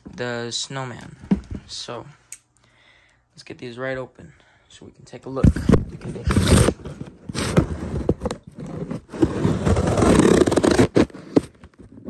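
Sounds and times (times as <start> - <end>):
packing tape and cardboard ripping: 5.9 - 12.0.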